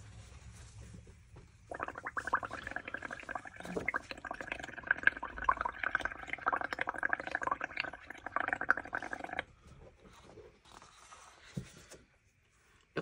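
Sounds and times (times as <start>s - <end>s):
air bubbling through straw: 1.7s - 9.5s.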